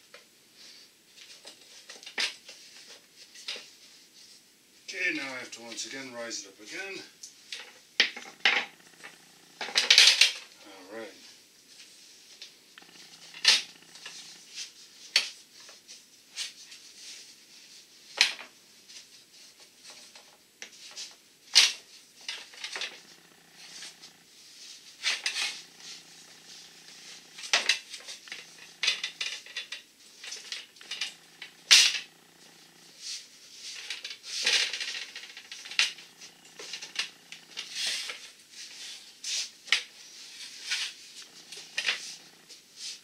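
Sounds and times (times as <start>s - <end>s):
metal scraping and rubbing: 12.8s - 14.6s, 22.7s - 39.5s, 40.3s - 43.0s.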